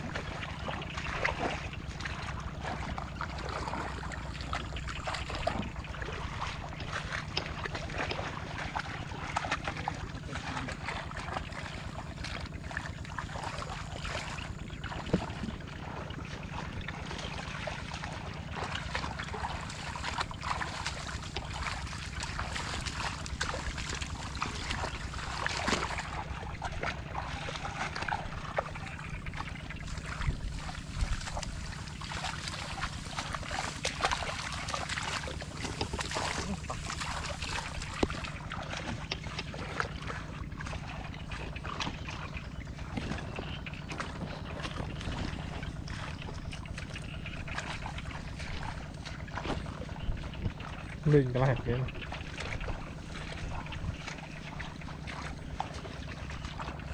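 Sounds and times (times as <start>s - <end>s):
wind rumble on microphone: 0.0s - 34.0s
muddy water sloshing: 0.0s - 56.9s
small splashes: 0.0s - 56.9s.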